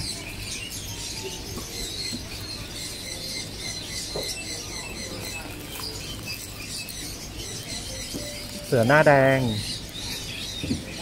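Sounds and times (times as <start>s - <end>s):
faint high chirping: 0.0s - 11.0s.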